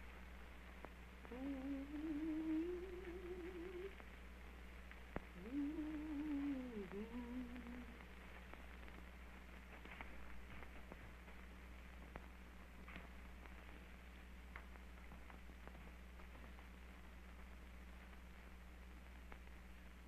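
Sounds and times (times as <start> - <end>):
film soundtrack hum and hiss: 0.0 - 20.0
woman humming a slow tune: 1.2 - 4.0, 5.4 - 8.1.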